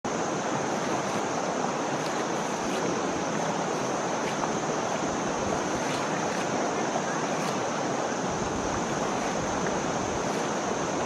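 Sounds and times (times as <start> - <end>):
river water rushing: 0.1 - 11.0.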